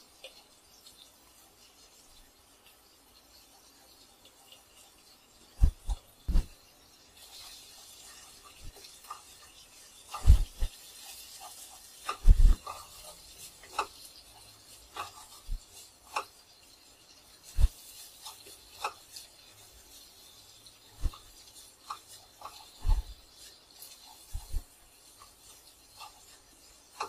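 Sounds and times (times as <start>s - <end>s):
wooden spatula scraping frying pan: 7.2s - 27.0s.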